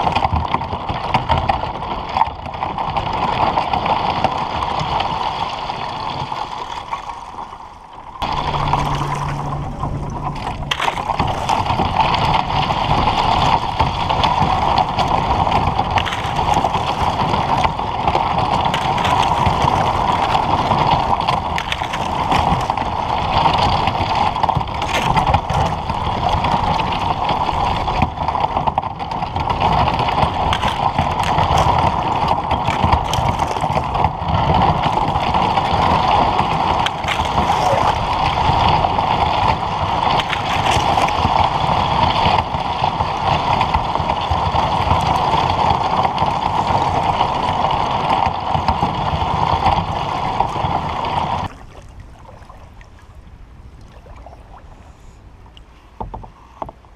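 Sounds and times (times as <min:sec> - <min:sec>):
ice crackling against hull: 0:00.0 - 0:52.5
water rushing and gurgling: 0:02.4 - 0:56.2.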